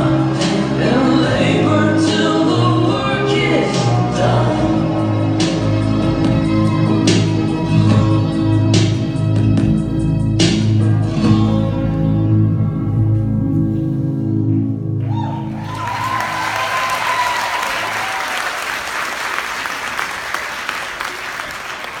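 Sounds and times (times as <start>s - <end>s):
audience applause: 15.0s - 22.0s
audience cheering: 15.0s - 22.0s.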